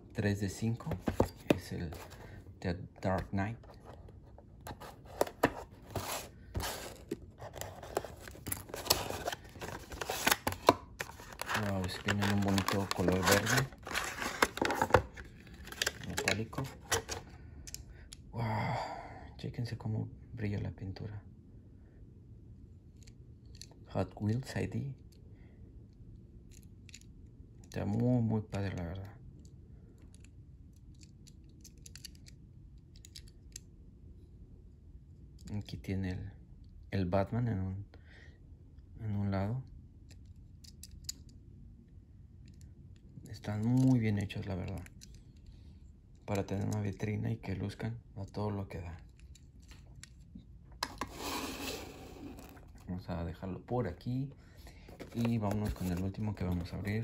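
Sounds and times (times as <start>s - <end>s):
low steady background hum: 0.0s - 57.0s
cardboard box scraping and rustling: 4.9s - 8.2s.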